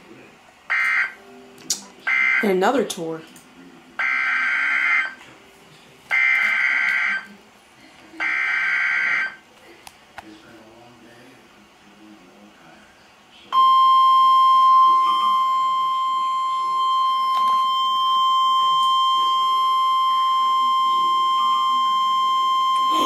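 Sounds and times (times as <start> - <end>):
high-pitched alarm beep: 13.6 - 23.0.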